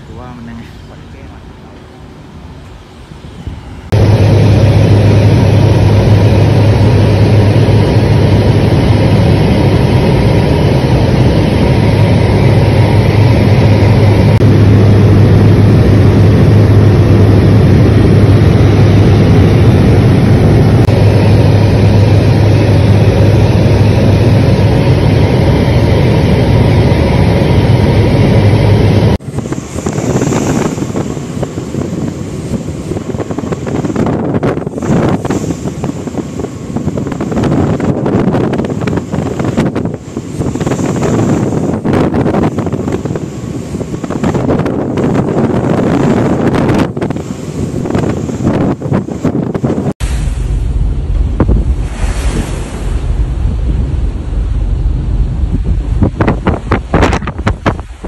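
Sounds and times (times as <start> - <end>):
propeller aircraft engine drone: 0.0 - 58.0
wind on microphone: 2.6 - 58.0
waves at sea: 18.0 - 58.0.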